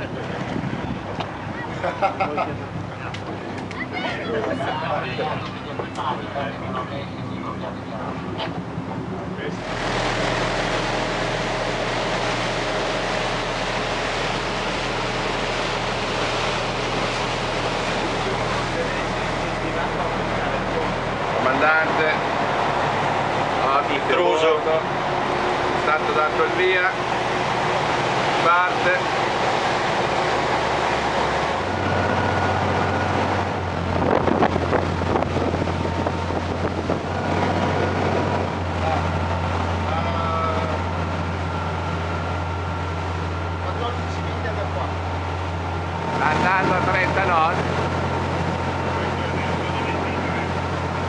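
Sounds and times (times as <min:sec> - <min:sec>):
wind buffeting microphone: 0:00.0 - 0:01.7, 0:29.1 - 0:39.8
boat engine drone: 0:00.0 - 0:51.0
wind: 0:00.0 - 0:51.0
rushing water: 0:09.6 - 0:51.0.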